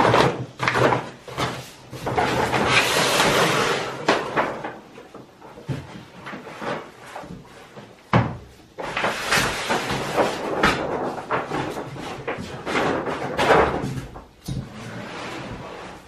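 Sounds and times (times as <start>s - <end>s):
wrapping paper rustling: 8.8s - 13.5s.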